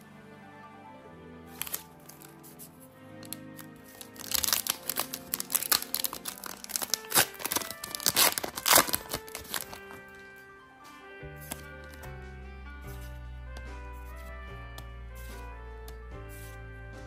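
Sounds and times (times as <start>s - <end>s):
soft background music: 0.0s - 17.0s
foil wrapper crinkling and tearing: 1.6s - 2.3s, 3.8s - 10.4s.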